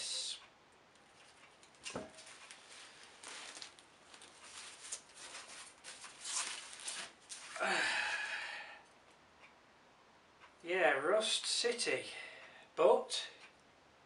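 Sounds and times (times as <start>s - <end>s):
plastic packing rustling: 1.1s - 7.6s.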